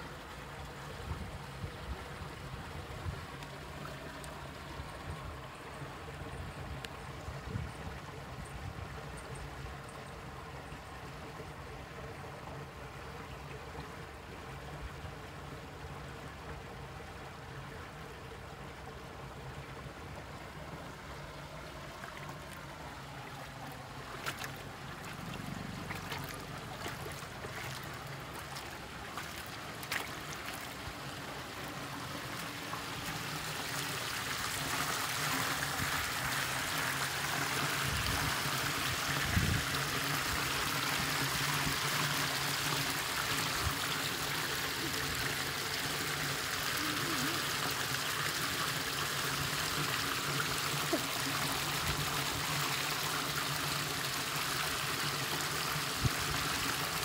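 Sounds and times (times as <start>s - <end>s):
water flowing over rocks: 0.0s - 57.0s.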